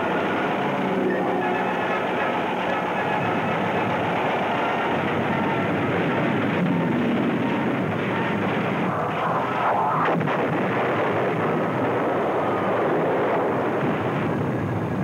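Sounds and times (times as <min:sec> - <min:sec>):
diving plane whine: 0:00.0 - 0:14.9
anti-aircraft gunfire: 0:03.7 - 0:14.5
sharp crack: 0:06.0 - 0:14.4.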